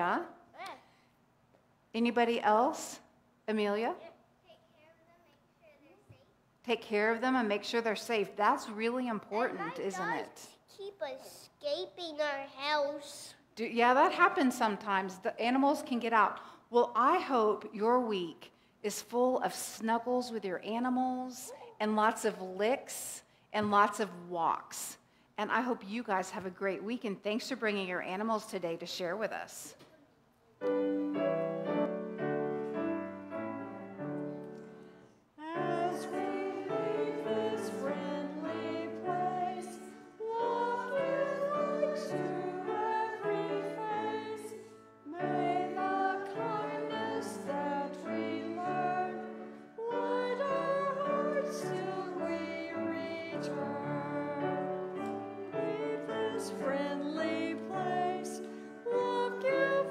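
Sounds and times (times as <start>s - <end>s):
grand piano accompaniment: 30.6s - 59.9s
person singing: 35.4s - 59.9s.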